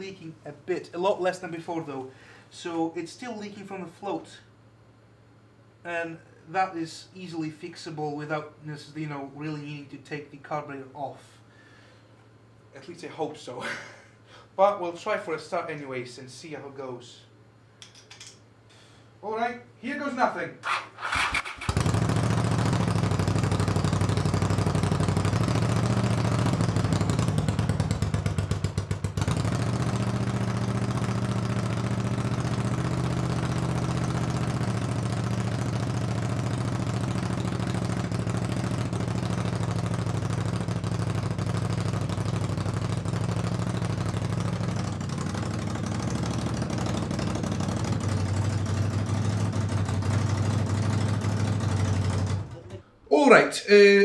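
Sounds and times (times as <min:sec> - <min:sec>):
motorcycle engine idling: 0:21.6 - 0:52.6.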